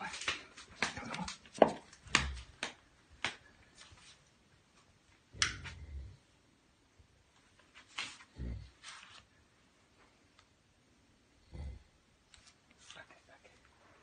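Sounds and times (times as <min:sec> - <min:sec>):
rustling: 0:07.3 - 0:10.5.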